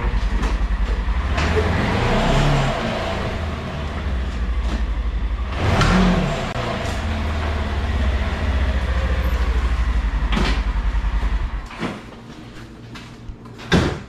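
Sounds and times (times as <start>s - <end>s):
utility vehicle engine idling: 0.0s - 11.8s.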